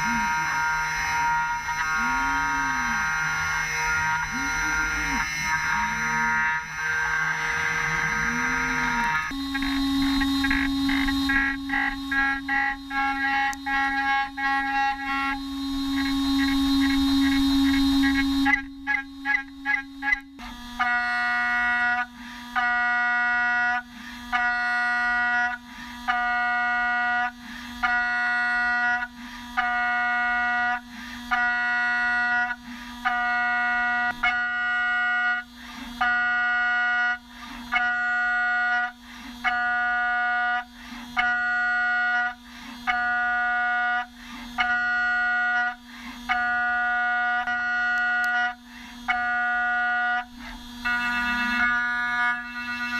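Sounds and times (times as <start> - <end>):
pulsing synth chord: 0.0 - 20.6
low steady drone: 0.0 - 39.4, 47.4 - 52.9.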